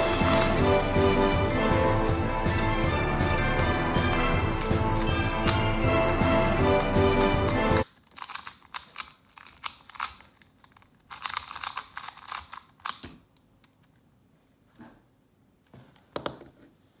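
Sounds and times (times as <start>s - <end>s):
plastic cube clicking and rattling: 7.5s - 14.0s.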